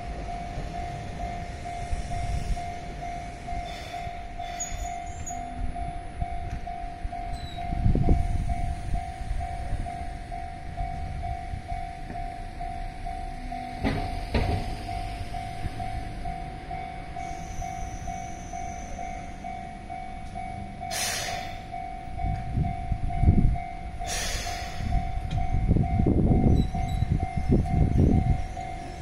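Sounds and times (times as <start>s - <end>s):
train motors and wheels rumbling: 0.0s - 29.0s.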